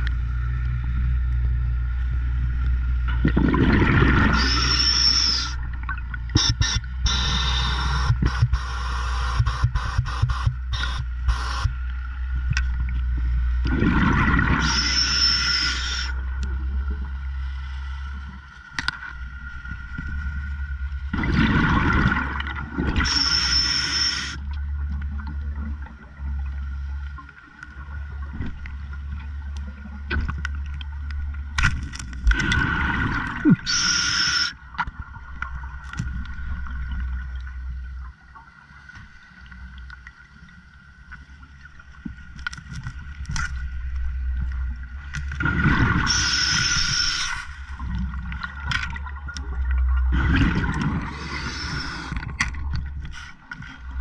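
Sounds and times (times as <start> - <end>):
low hum: 0.0 - 38.4
regulator hiss: 6.4 - 11.8, 14.6 - 16.1, 23.1 - 24.4, 33.6 - 34.6, 46.1 - 47.6, 51.1 - 52.2
diver exhaling bubbles: 50.1 - 52.3.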